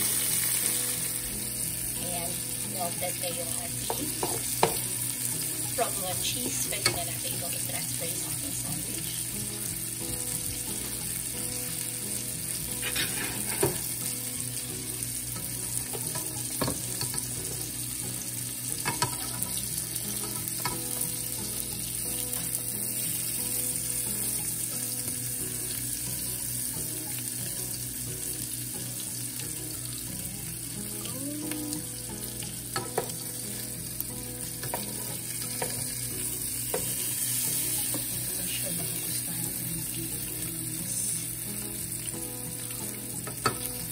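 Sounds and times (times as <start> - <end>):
meat and onions sizzling in a pan: 0.0 - 43.9
spatulas clicking and scraping: 12.8 - 13.8.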